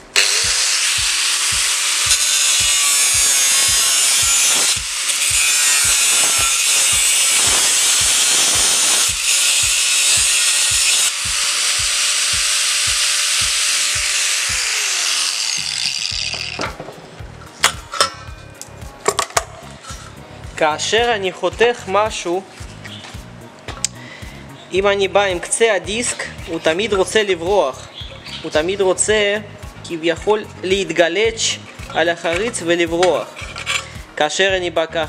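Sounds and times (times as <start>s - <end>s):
angle grinder cutting metal: 0.0s - 16.8s.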